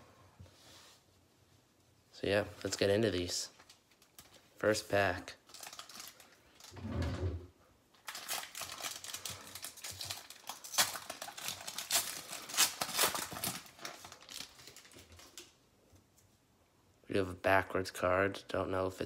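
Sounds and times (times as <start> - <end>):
foil wrapper crinkling: 2.6 - 4.6, 5.2 - 6.8, 8.0 - 15.6.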